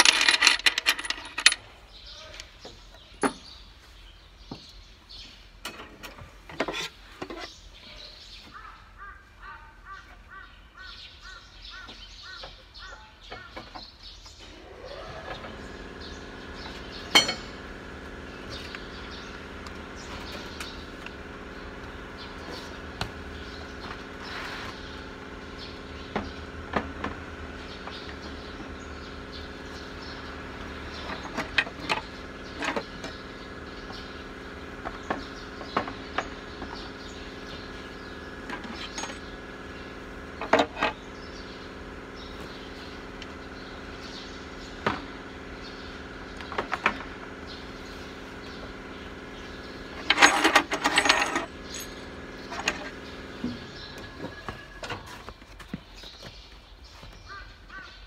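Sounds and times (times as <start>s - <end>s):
hand tools clinking on metal: 0.0s - 1.6s, 17.1s - 17.6s, 50.0s - 52.9s
steady mechanical hum: 0.0s - 58.0s.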